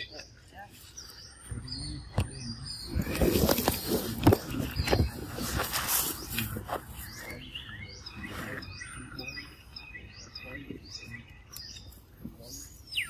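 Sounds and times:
birds chirping: 0.0 - 13.0
rustling: 3.0 - 7.4.

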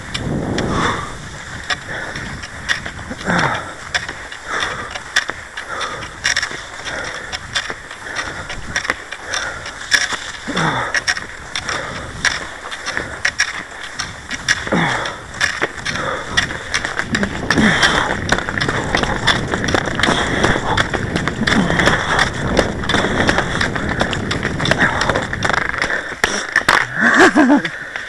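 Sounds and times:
skis scraping on snow: 0.0 - 28.0.

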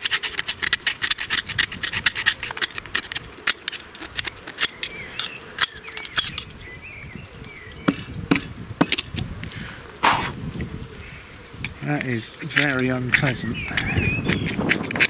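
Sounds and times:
metal clicks and scraping: 0.0 - 6.6, 11.6 - 15.0
faint bird chirping: 4.6 - 8.7, 9.5 - 14.8.

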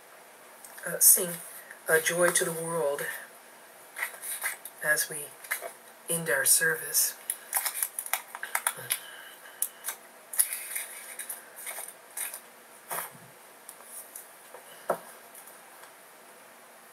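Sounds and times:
objects being handled clicking: 7.3 - 9.0.

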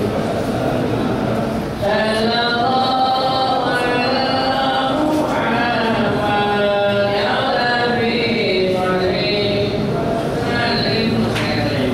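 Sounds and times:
man chanting: 1.8 - 11.9.

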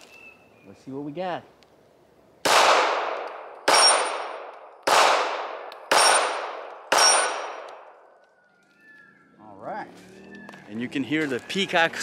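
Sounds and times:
pistol shots with echo: 2.4 - 7.9.

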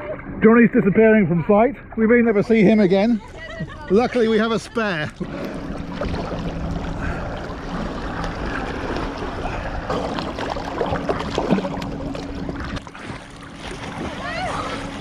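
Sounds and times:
water lapping and sloshing: 0.0 - 15.0
paddle splashes: 5.1 - 15.0.

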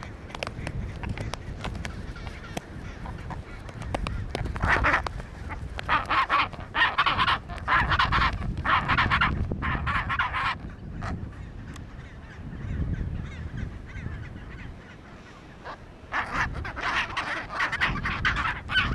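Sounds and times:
penguin braying calls: 2.0 - 11.2, 15.6 - 18.9.

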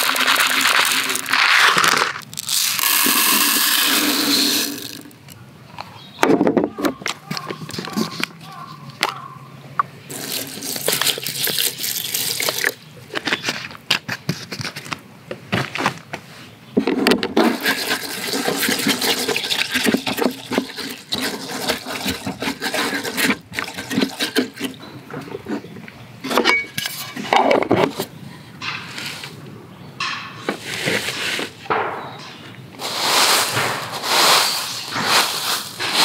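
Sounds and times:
water pouring onto rice: 0.0 - 5.1, 10.1 - 12.7
rice and water sloshing in tin: 0.0 - 5.2, 10.1 - 12.8, 17.4 - 24.9, 32.8 - 36.0.

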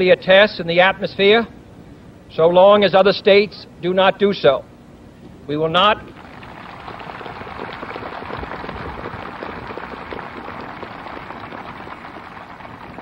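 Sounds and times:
large crowd applauding: 6.2 - 13.0.

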